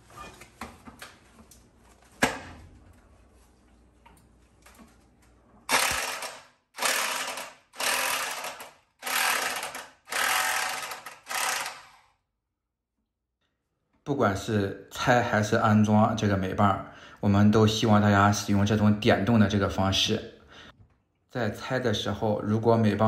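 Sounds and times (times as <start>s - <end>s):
impact wrench hammering: 5.7s - 12.0s.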